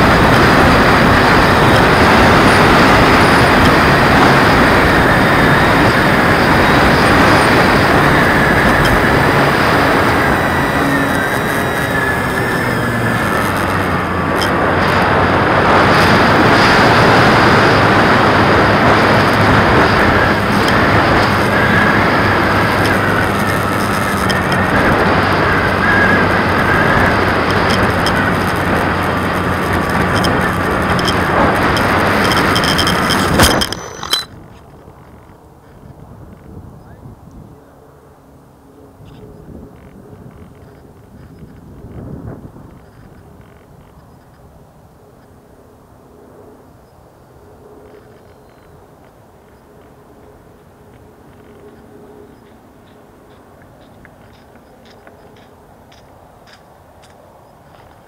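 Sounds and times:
heavy wind rush: 0.0 - 44.9
model plane motor and propeller: 0.0 - 58.0.

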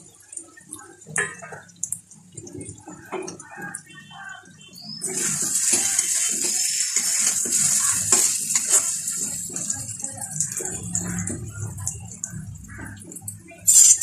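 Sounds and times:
potatoes sizzling in oil: 4.8 - 11.6, 13.3 - 14.0
spatula scraping pan: 5.1 - 9.8.

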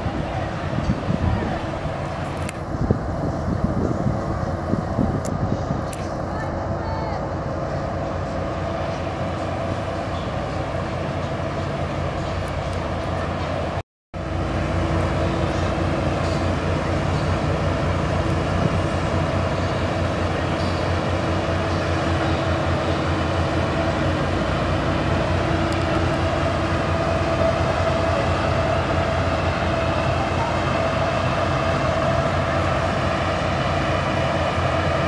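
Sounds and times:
diesel engine droning: 0.0 - 35.0.

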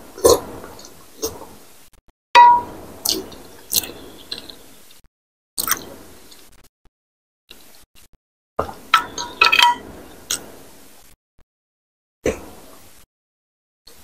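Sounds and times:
spoon clinking on glass bowl: 2.4 - 2.7, 9.0 - 9.8.

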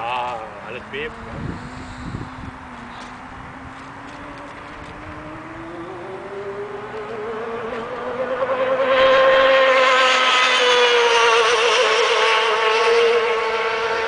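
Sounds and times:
model boat motor whine: 0.0 - 14.0.

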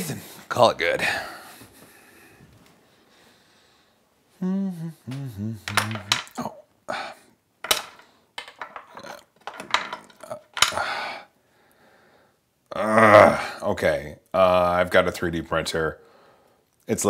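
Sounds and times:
plastic toothbrush heads clattering: 5.7 - 6.4, 7.6 - 10.8.

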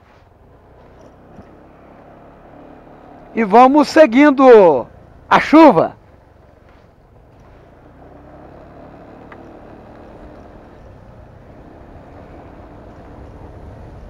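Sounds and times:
tyres on wet road: 0.0 - 14.0
motorcycle engine running: 0.1 - 14.0
wind noise: 12.2 - 14.0.

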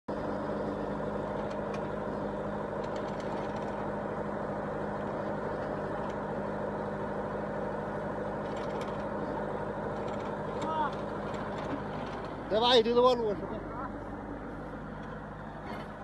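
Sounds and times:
tractor engine running: 0.1 - 16.0.

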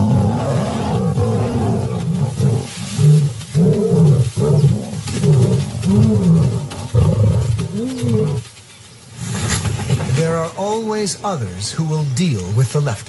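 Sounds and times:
lions growling and snarling: 0.0 - 8.5.

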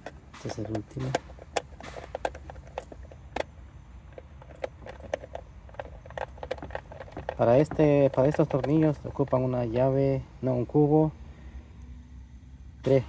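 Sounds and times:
light clicks and taps of parts: 0.0 - 3.5, 4.1 - 9.9
low steady hum: 0.0 - 13.0.

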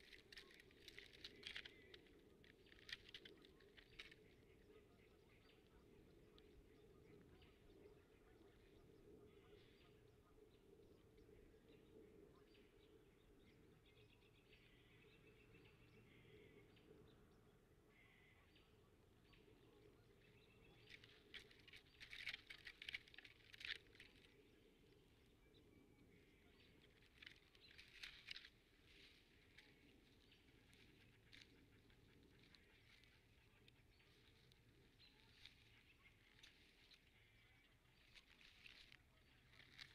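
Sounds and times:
sticks and dry grass crackling: 0.0 - 9.8, 19.1 - 39.9.

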